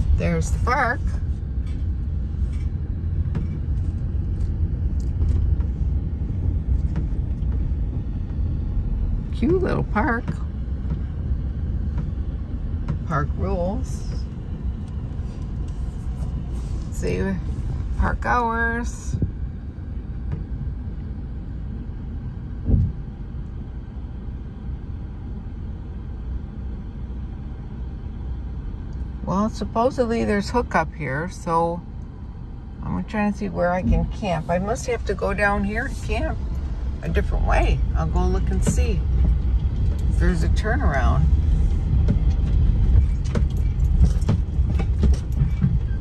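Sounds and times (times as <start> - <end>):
road noise: 0.0 - 46.0
van engine rumble: 0.0 - 46.0
low bump: 22.6 - 23.2, 33.4 - 46.0.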